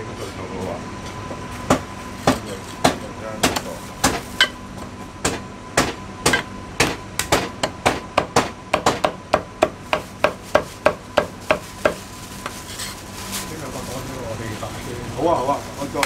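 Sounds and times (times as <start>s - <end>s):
cleaver chopping on wooden block: 5.2s - 12.0s.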